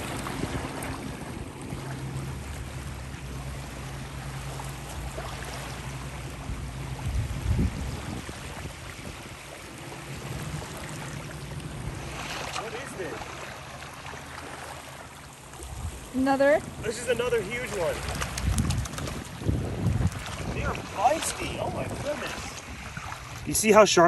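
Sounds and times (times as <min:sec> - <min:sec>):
small waves lapping: 0:00.0 - 0:24.0
wind on microphone: 0:06.3 - 0:09.5, 0:15.6 - 0:23.6.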